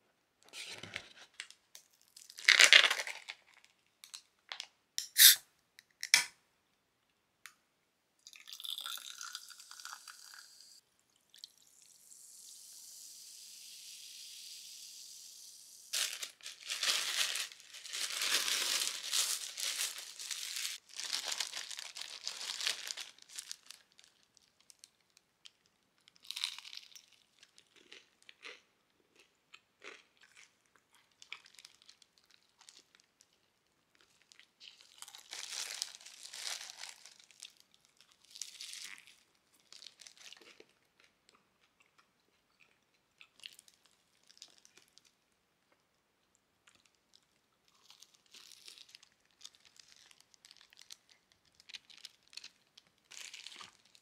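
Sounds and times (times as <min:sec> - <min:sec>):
cola fizzing over ice: 0:08.3 - 0:10.8
thin plastic crinkling: 0:15.9 - 0:27.0, 0:34.0 - 0:40.6, 0:47.8 - 0:54.0.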